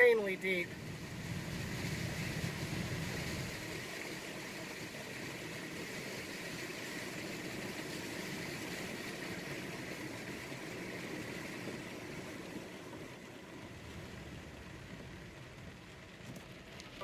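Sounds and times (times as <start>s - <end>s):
car engine running slowly: 0.0s - 17.0s
hiss of water and rain: 0.0s - 17.0s.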